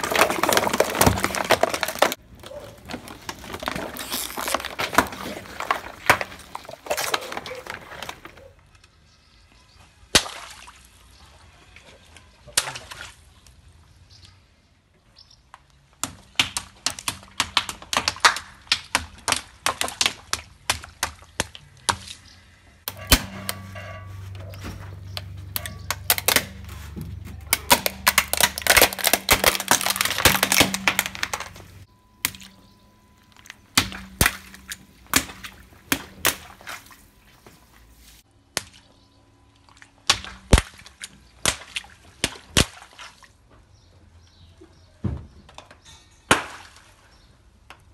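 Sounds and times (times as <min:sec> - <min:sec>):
tyre crushing balloons and plastic: 0:00.0 - 0:08.5, 0:22.9 - 0:38.2
low hum: 0:22.9 - 0:38.0.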